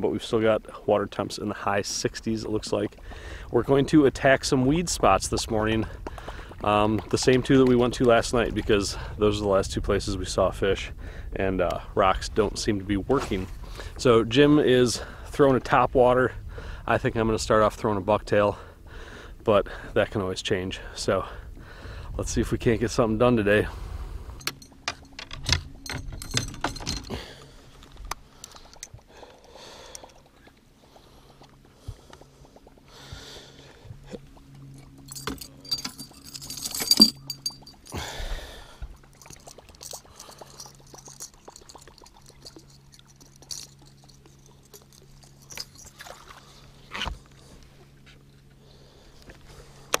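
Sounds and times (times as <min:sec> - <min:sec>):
fishing tackle clinking: 0:24.4 - 0:29.1, 0:34.8 - 0:38.2, 0:39.1 - 0:46.4.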